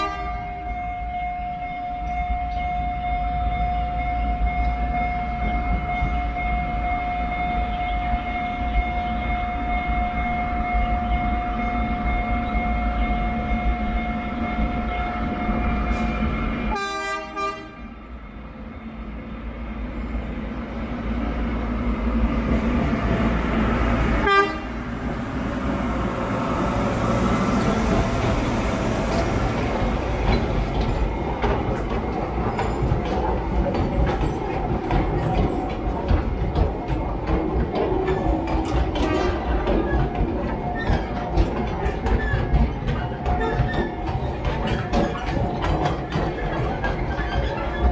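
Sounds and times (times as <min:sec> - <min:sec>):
train horn: 0:00.0 - 0:18.0, 0:24.2 - 0:25.0, 0:38.9 - 0:39.7
train running with wheel clicks: 0:00.0 - 0:47.9.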